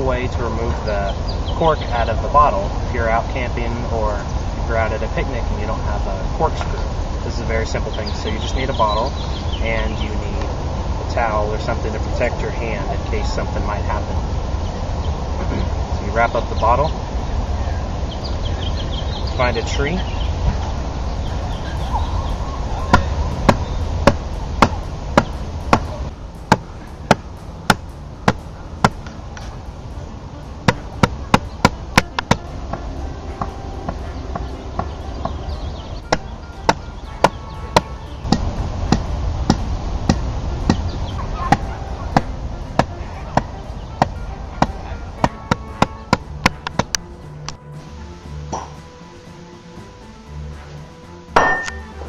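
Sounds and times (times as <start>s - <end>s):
bottle knocking against tree trunk: 48.5s - 48.8s, 51.4s - 52.0s.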